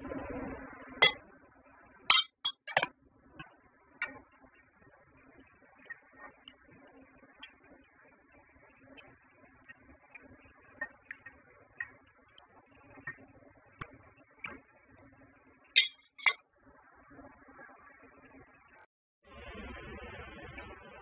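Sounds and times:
glass lid clinking on a pot: 2.1s - 2.9s, 15.8s - 16.4s
spoon scraping a steel pot: 2.1s - 2.9s, 15.8s - 16.4s.

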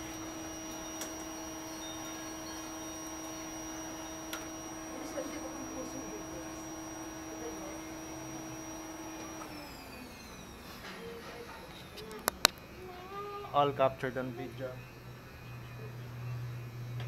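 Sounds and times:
high whine: 0.0s - 10.8s
small motor electric hum: 0.0s - 17.0s.

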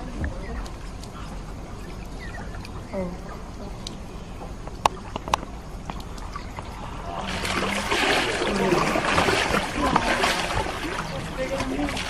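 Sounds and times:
river water splashing: 4.9s - 12.0s.

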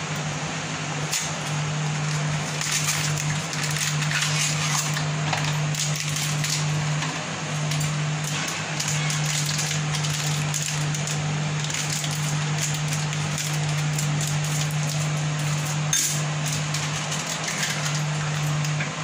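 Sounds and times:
steady low hum: 0.0s - 19.0s
plastic packet crinkling: 7.6s - 18.7s.

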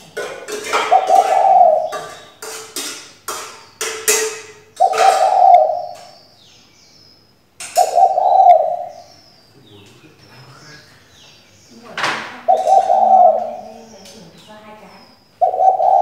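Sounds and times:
dove cooing: 0.0s - 2.6s, 4.0s - 6.2s, 7.6s - 9.1s, 11.8s - 16.0s.

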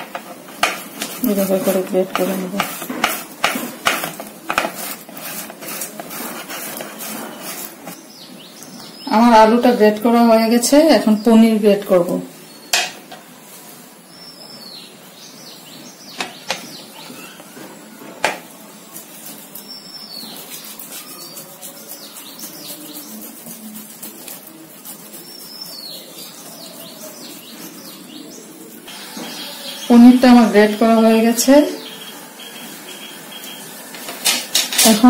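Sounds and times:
birds chirping: 0.0s - 35.0s
cheese scraping on grater: 1.0s - 8.0s, 18.9s - 27.8s
grater knocking: 2.0s - 7.0s.

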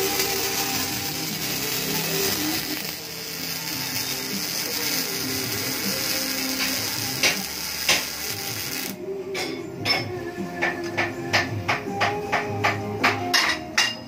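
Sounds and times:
welding arc crackling: 0.0s - 9.0s
welding arc pops: 0.0s - 9.0s.

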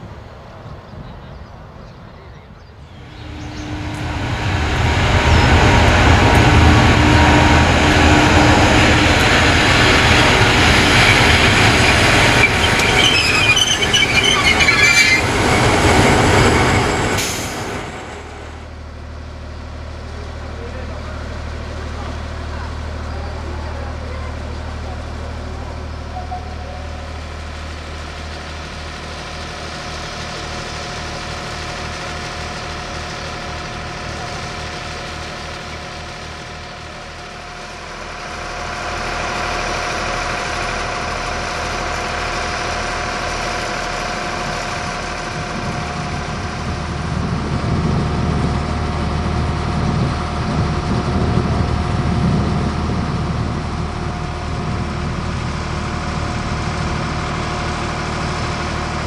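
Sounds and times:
diesel locomotive engine idling: 0.0s - 59.0s
deep heavy rumble: 2.7s - 59.0s
held whine: 2.9s - 18.8s.

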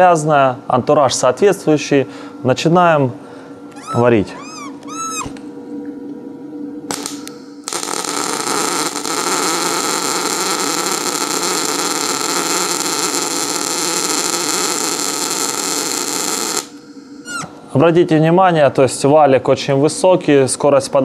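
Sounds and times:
welding arc striking clicks: 6.9s - 16.8s
welding arc sizzling: 6.9s - 17.4s.

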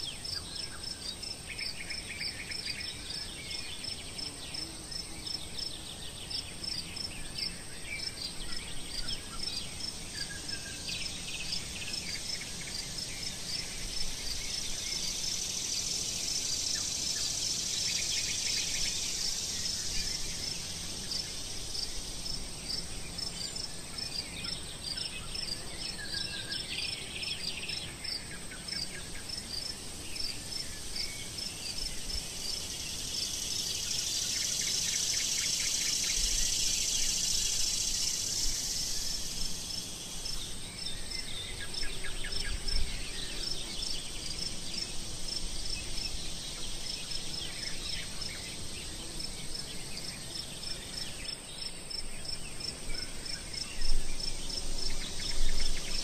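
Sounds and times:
insects chirping: 0.0s - 56.0s
high hiss: 9.0s - 52.0s.

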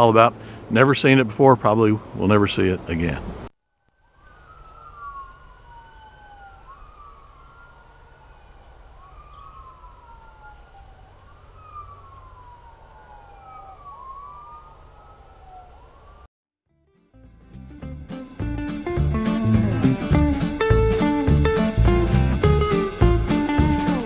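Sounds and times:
distant sirens wailing: 1.4s - 2.7s, 3.9s - 16.3s, 19.3s - 24.0s.

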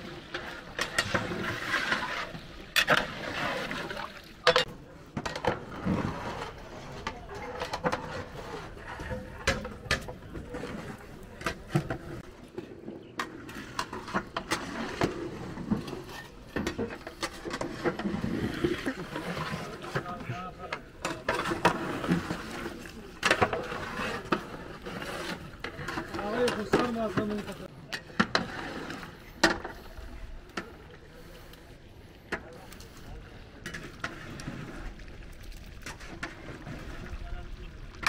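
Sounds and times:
people talking: 3.6s - 13.0s, 18.4s - 28.2s, 29.6s - 34.1s, 36.9s - 38.0s.

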